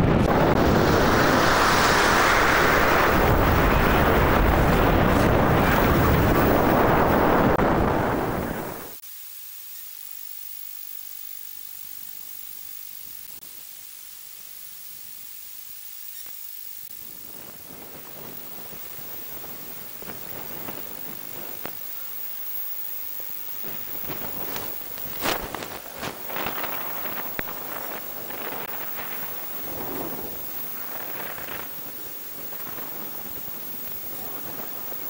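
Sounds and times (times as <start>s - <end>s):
strong wind buffeting microphone: 0.0s - 9.0s
waves breaking with spray: 0.0s - 9.0s
steady faint hiss: 0.1s - 35.0s.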